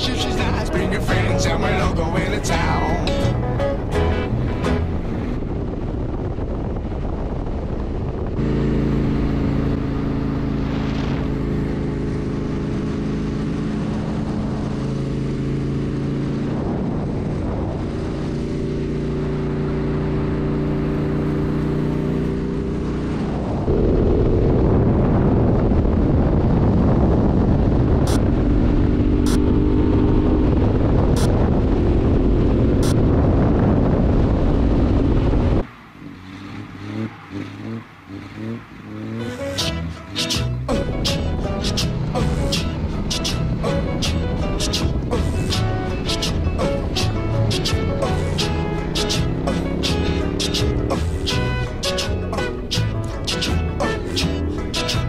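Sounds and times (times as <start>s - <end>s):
wind noise on microphone: 0.0s - 35.7s, 38.5s - 55.0s
motorcycle engine cruising: 0.0s - 55.0s.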